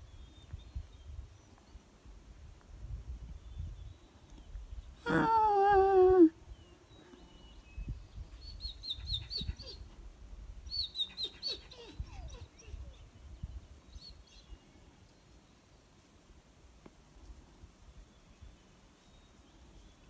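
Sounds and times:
small bird chirping: 6.5s - 9.9s, 10.6s - 14.8s.

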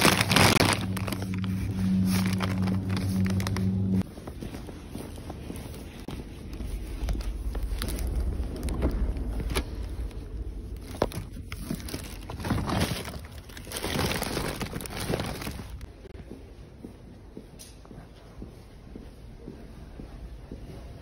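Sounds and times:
handling noise rumble: 0.0s - 16.1s
plastic bag rustling: 0.0s - 16.1s.

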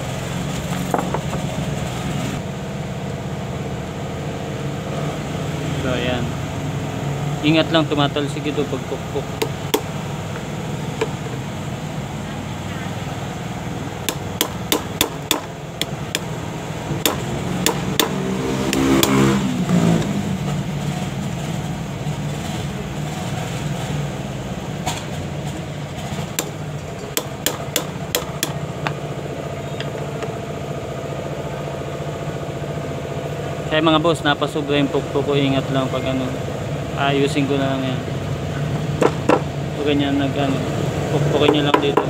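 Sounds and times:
engine hum: 0.0s - 42.0s
hammer tapping metal: 9.0s - 10.0s, 11.0s - 11.4s, 14.0s - 19.4s, 26.2s - 29.0s.

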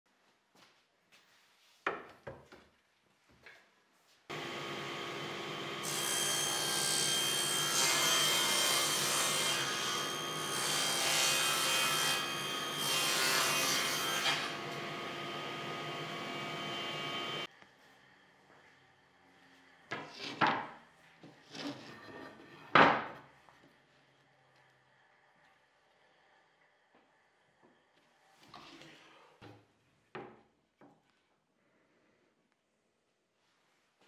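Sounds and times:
saw cutting plywood: 4.3s - 17.5s
table saw running: 4.3s - 17.5s.

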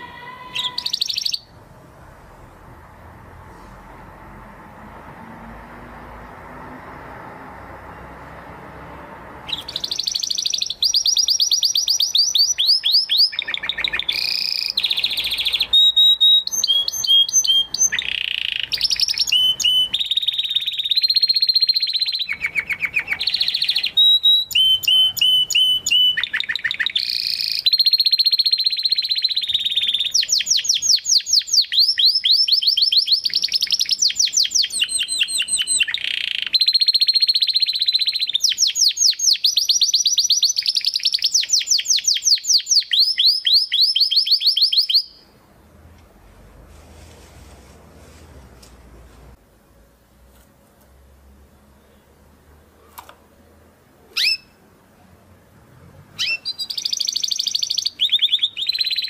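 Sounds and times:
canary singing: 0.0s - 1.6s, 9.4s - 45.4s, 54.1s - 54.7s, 56.1s - 59.0s.

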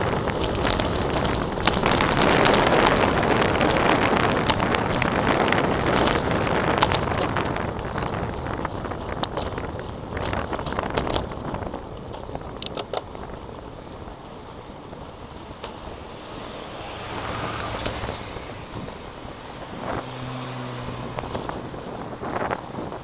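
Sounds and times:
low engine hum: 0.0s - 23.0s
tyre and road noise: 0.0s - 23.0s
wind on microphone: 0.0s - 23.0s
car overtaking: 13.1s - 23.0s.

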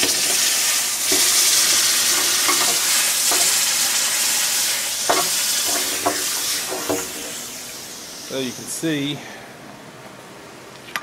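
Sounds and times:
hot metal hissing in water: 0.0s - 9.2s.

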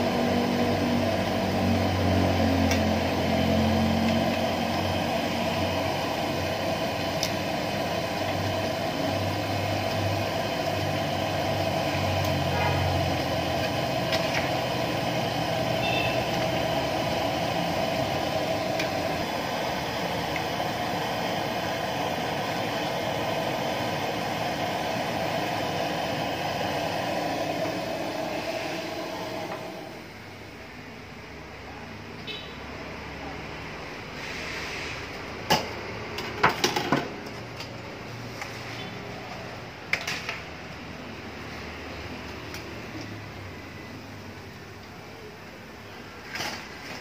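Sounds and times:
frying in hot oil sizzling: 0.0s - 30.0s.

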